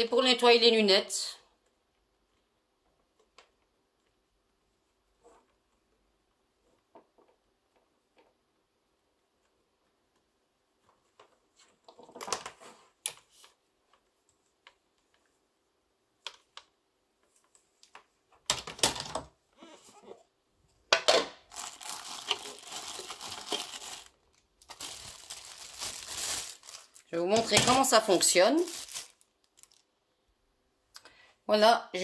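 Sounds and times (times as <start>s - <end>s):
plastic rustling: 21.5s - 29.9s.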